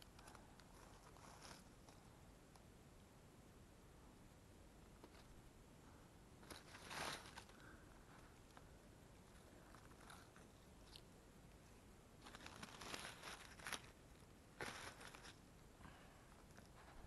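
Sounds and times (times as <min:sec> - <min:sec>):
dry leaves crunching and rustling: 0:12.2 - 0:13.9.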